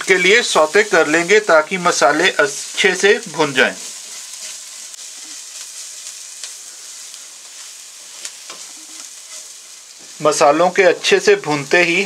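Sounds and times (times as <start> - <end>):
onions sizzling in oil: 0.0 - 12.0
spatula scraping pan: 3.5 - 10.2.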